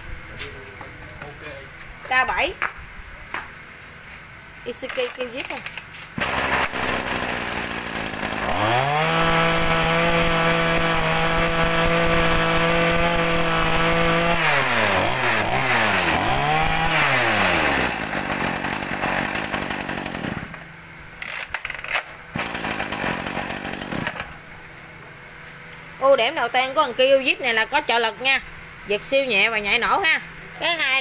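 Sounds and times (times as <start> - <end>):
brush cutter engine revving: 6.2 - 20.6, 21.2 - 24.3.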